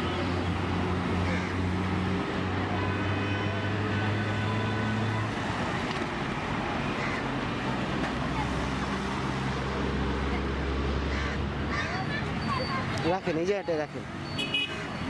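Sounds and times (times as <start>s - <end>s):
passing traffic hum: 0.0s - 15.0s.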